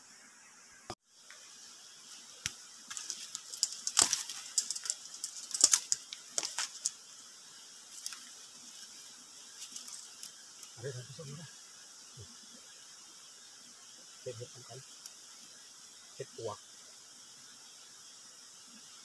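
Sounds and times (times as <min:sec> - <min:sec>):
dry leaves and twigs crackling underfoot: 0:02.1 - 0:07.0, 0:07.9 - 0:10.9.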